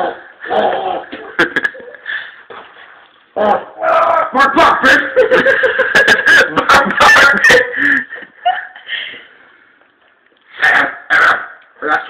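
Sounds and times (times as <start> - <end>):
hearty laughter: 1.2 - 2.0, 5.0 - 8.9.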